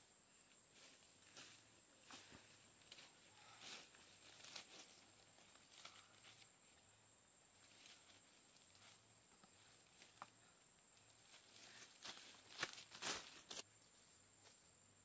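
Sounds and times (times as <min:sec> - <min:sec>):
footsteps through leafy undergrowth: 0:11.2 - 0:13.6.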